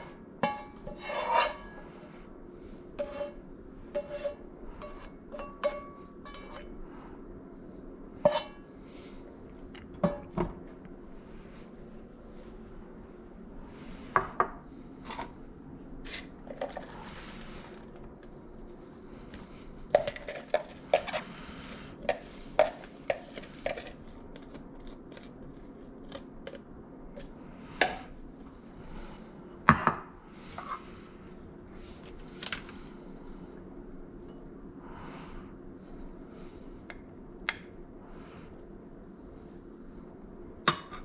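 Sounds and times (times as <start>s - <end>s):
steady low hum: 0.0s - 41.0s
dishes and utensils clinking: 4.0s - 6.7s
soft brushing movements: 10.9s - 14.0s.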